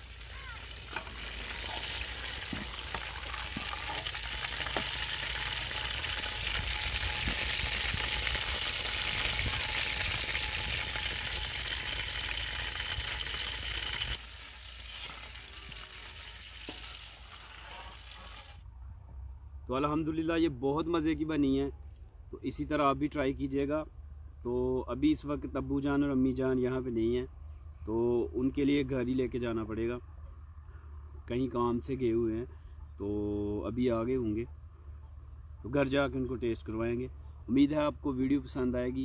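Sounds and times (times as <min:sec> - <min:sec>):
chicken sizzling in hot oil: 0:00.0 - 0:18.6.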